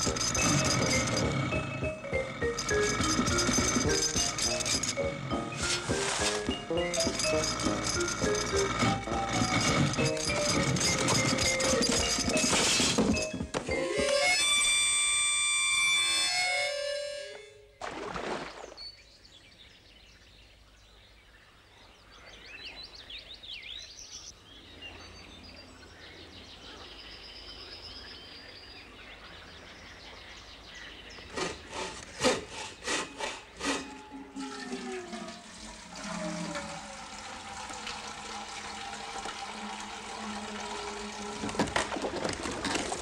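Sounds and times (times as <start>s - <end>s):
water pouring and splashing: 2.6s - 7.3s, 17.8s - 18.9s, 34.4s - 43.0s.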